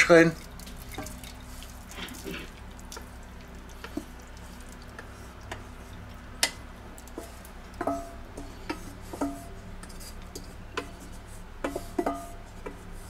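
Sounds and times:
low steady hum: 0.0 - 13.0
wooden spatula scraping pot: 7.0 - 13.0.

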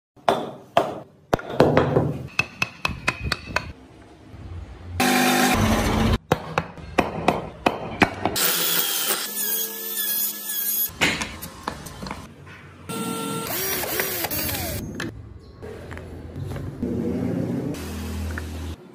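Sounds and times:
carving tools tapping wood: 2.3 - 3.8
power tool running: 12.9 - 14.8.

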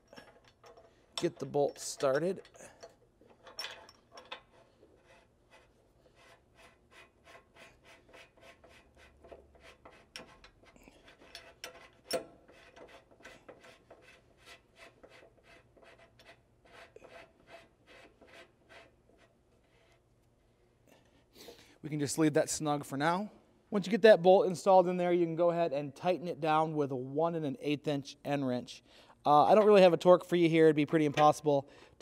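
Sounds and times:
bolt threads scraping: 0.0 - 20.4.

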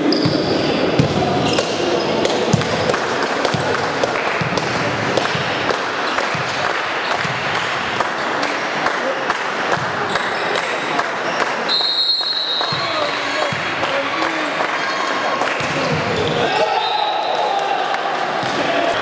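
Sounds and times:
murmur of spectators: 0.0 - 19.0
ball slaps and thuds: 1.0 - 7.6.

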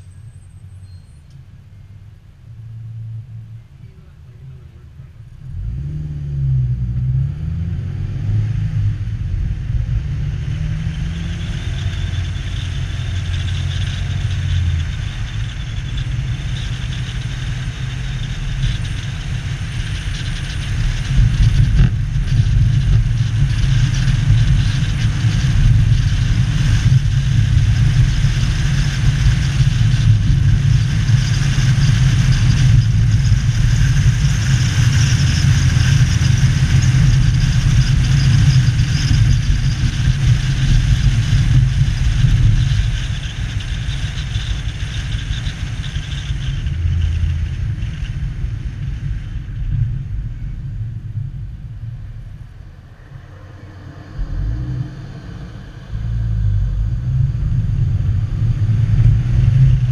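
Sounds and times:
car engine accelerating: 0.0 - 59.9
tyre and wind noise: 5.5 - 53.3, 54.0 - 59.9.

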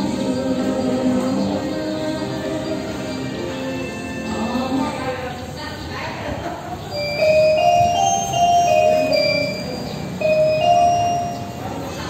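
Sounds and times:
bell-like chime melody: 6.9 - 11.8.

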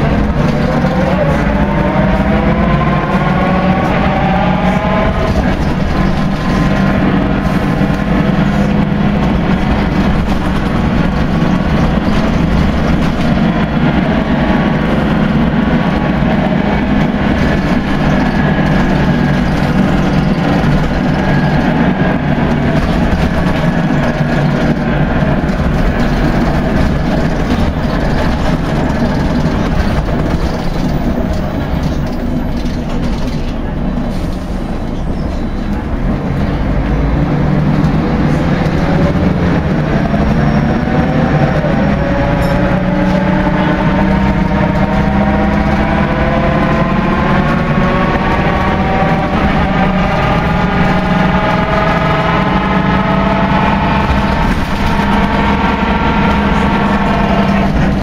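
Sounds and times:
bus engine and drivetrain noise: 0.0 - 58.0
whine rising in pitch: 0.1 - 10.2, 36.9 - 58.0.

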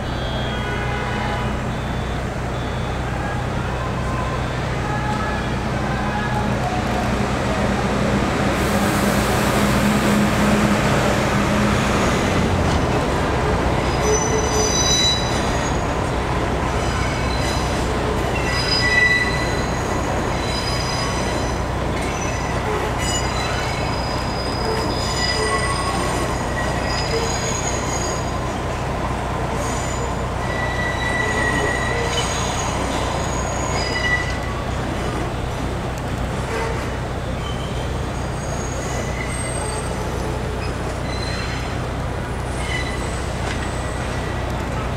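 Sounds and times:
train rumble: 0.0 - 44.9
high-pitched wheel squeals: 13.9 - 15.9, 16.8 - 28.4, 29.6 - 34.5, 36.5 - 41.8, 42.5 - 44.2.

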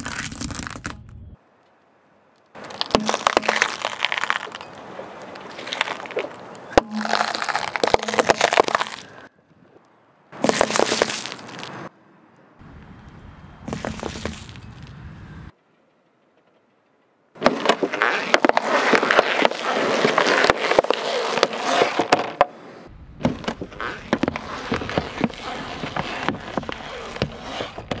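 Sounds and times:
plastic crackling under car tyre: 0.0 - 1.2, 2.4 - 9.2, 10.4 - 11.8, 17.4 - 22.4, 23.4 - 28.0.

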